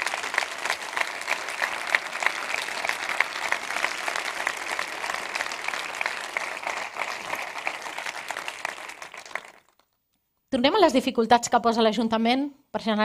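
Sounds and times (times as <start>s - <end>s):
large audience applauding: 0.0s - 9.9s.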